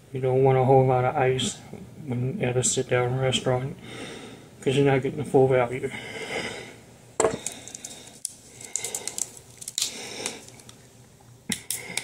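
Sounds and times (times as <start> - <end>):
plastic bottle crackling: 7.2 - 10.8.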